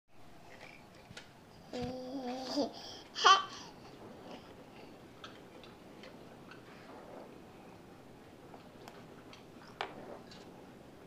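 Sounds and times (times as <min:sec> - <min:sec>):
toddler vocalizing: 0:01.7 - 0:03.6.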